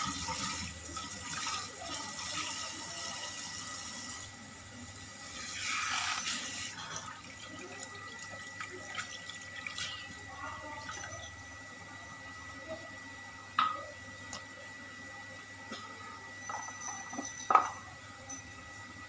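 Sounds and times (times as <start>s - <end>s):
tap water running into sink: 0.0s - 4.4s, 5.1s - 11.2s.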